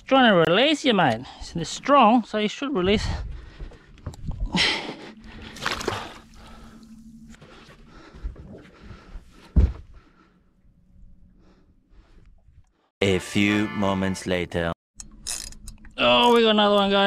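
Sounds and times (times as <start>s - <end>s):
water splashing: 5.1s - 7.8s.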